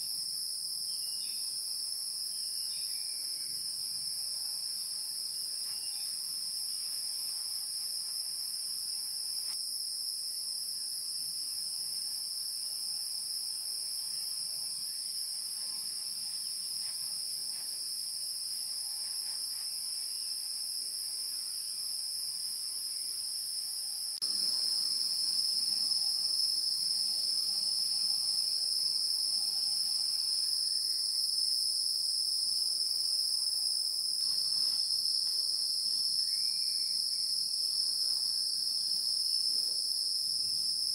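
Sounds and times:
insect chorus shrilling: 0:05.1 - 0:07.2, 0:36.0 - 0:37.5.

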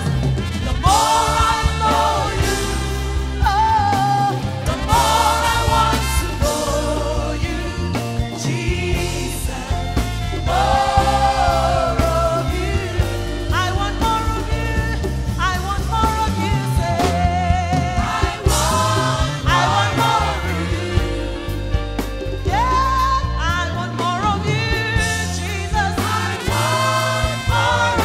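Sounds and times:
gospel band with keyboards: 0:00.0 - 0:28.0
backing singers: 0:00.8 - 0:13.5, 0:17.7 - 0:21.7, 0:25.9 - 0:28.0
woman singing lead: 0:00.9 - 0:26.8.

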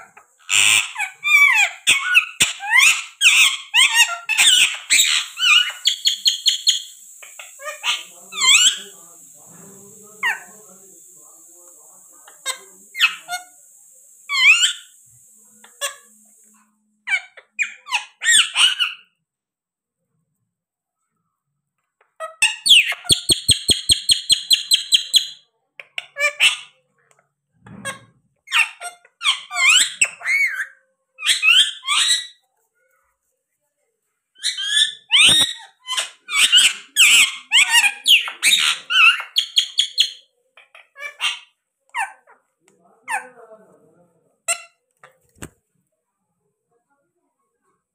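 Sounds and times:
parakeet squawking: 0:00.0 - 0:16.4, 0:17.1 - 0:19.2, 0:34.4 - 0:42.4.

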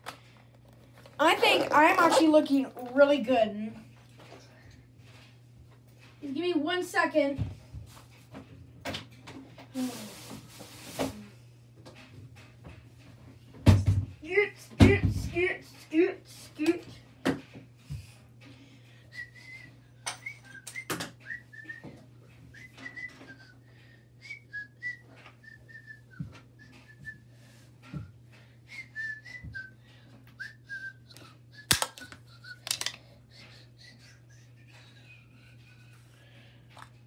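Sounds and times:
person whistling a tune: 0:19.1 - 0:21.9, 0:22.5 - 0:27.2, 0:28.0 - 0:35.5
clicks and knocks of handling: 0:31.7 - 0:33.0.

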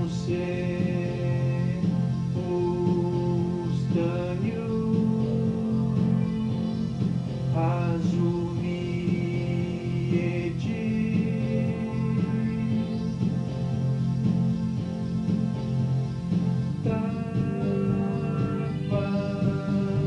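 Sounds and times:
electronic keyboard melody: 0:00.0 - 0:20.0.

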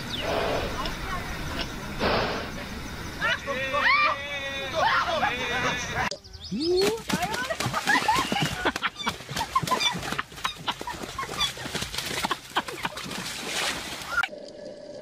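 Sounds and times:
wings beating and splashing water: 0:06.6 - 0:14.3.

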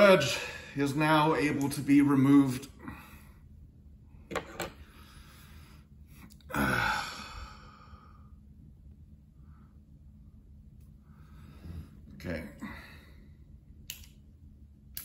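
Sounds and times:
man sighing: 0:06.4 - 0:07.9.

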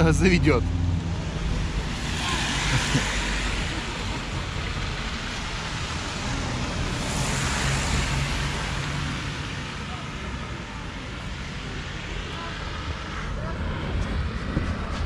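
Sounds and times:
low rumble: 0:00.0 - 0:05.6.

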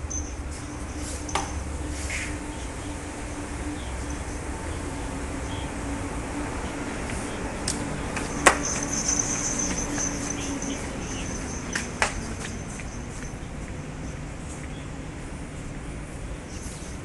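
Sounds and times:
insect trill: 0:00.0 - 0:05.8, 0:07.8 - 0:13.4
low hum: 0:00.0 - 0:14.4.

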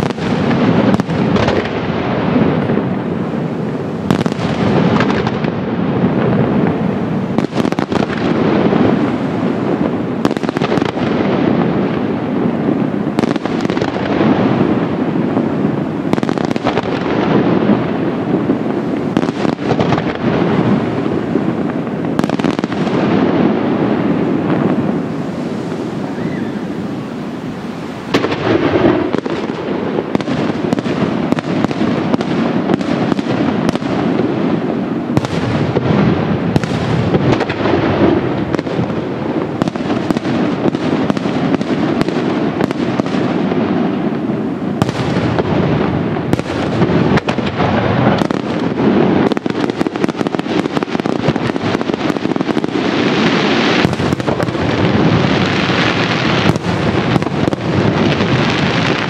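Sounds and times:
fireworks bangs and crackling: 0:00.0 - 0:59.0.

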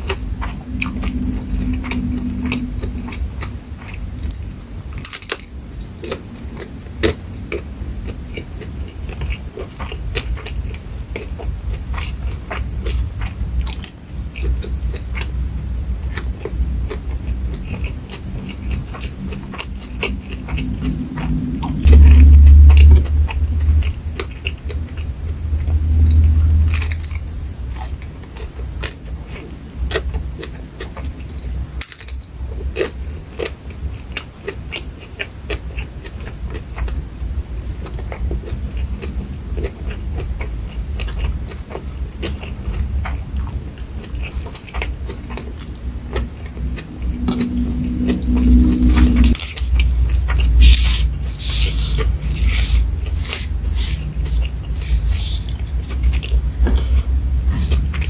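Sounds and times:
loud low rumble: 0:00.0 - 0:31.6, 0:36.4 - 0:58.0
chewing and crunching: 0:00.0 - 0:58.0.

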